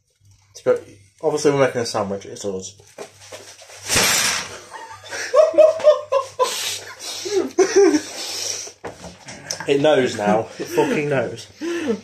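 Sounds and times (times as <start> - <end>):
loud burst of noise: 3.8 - 4.6
men laughing: 4.5 - 8.2, 9.3 - 12.0.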